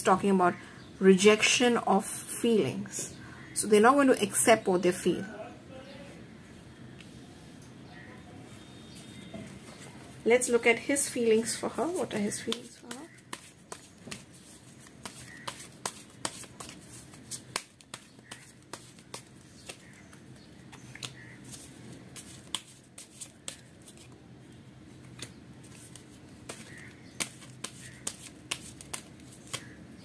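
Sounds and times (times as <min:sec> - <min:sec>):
cards shuffling and snapping: 0:12.2 - 0:24.2, 0:25.0 - 0:29.8.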